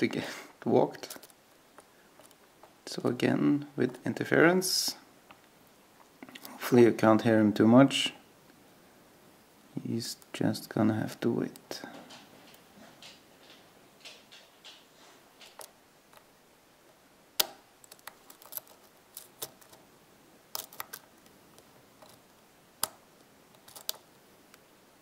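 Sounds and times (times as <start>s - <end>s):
lock pick metallic clicks: 20.5s - 21.1s.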